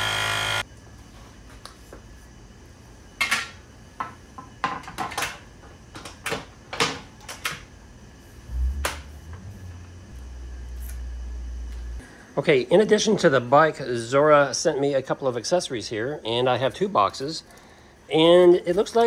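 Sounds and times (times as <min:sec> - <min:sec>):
low hum: 0:08.2 - 0:12.4.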